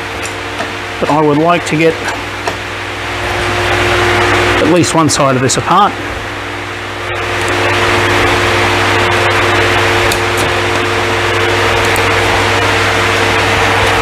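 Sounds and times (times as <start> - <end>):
hydraulic pump humming and hissing: 0.0 - 14.0.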